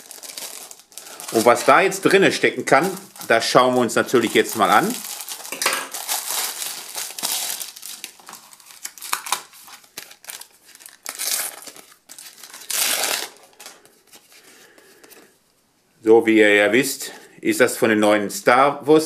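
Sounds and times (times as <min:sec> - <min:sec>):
packet tearing open: 0:00.0 - 0:14.4
plastic packaging crinkling: 0:00.0 - 0:15.2.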